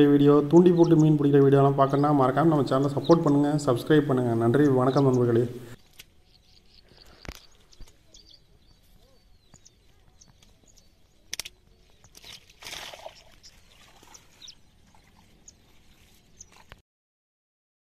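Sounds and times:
bird chirps: 0.0s - 16.7s
sharp clicks: 11.3s - 11.6s
wet net rustling and swishing: 12.1s - 16.7s.

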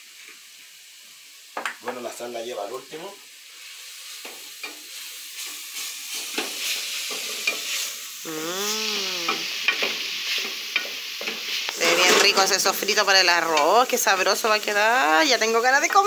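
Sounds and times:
onion sizzling in a frying pan: 0.0s - 16.0s.

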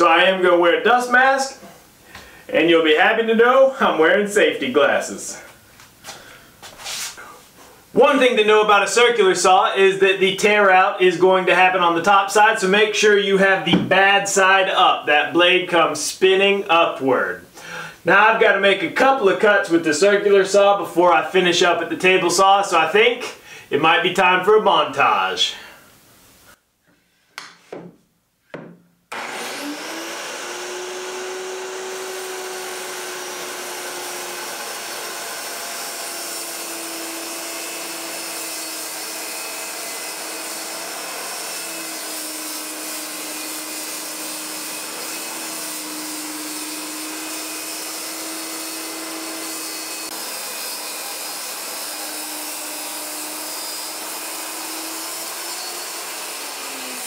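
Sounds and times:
circular saw cutting wood: 29.1s - 57.0s.

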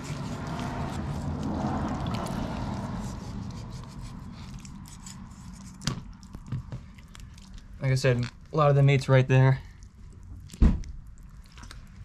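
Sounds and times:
knife squelching through fish flesh: 0.0s - 7.8s.

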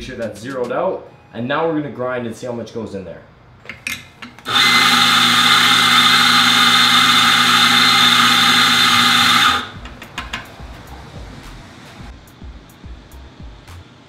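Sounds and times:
coffee grinder motor whirring: 4.4s - 9.8s.

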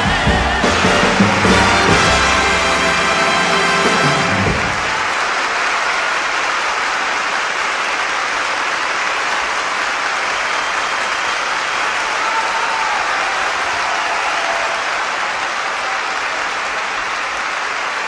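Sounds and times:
orchestra closing chord: 0.0s - 5.2s
audience applauding: 0.0s - 18.0s.

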